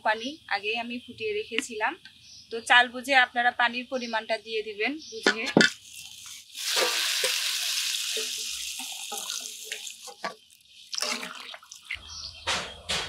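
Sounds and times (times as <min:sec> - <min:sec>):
water pouring into a pan: 0:05.7 - 0:12.0.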